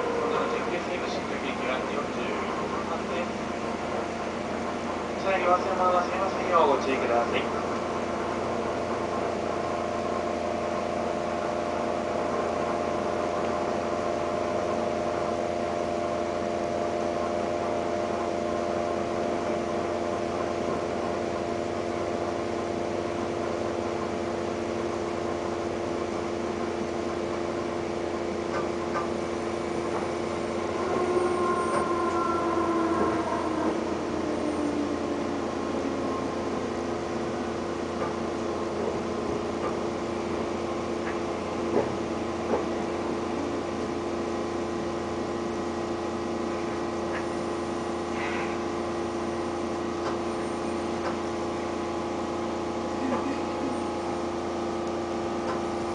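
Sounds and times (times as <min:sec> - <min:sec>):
train wheels rumbling: 0:00.0 - 0:25.4, 0:28.2 - 0:44.0
train motor whine: 0:00.0 - 0:55.9.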